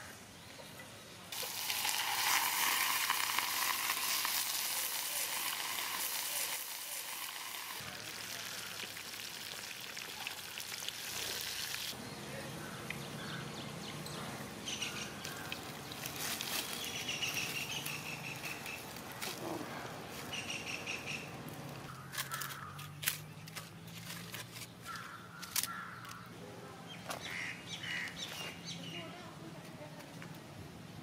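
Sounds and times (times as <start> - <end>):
dried leaves crackling: 1.3 - 12.0, 14.7 - 26.2
birds calling: 11.8 - 29.1.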